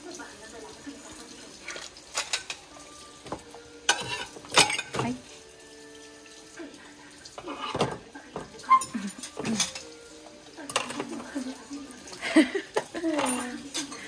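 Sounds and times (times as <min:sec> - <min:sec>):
dishes clinking: 0:02.1 - 0:05.5, 0:07.3 - 0:11.6, 0:12.4 - 0:14.0
tap running into sink: 0:03.2 - 0:05.2, 0:07.4 - 0:11.4.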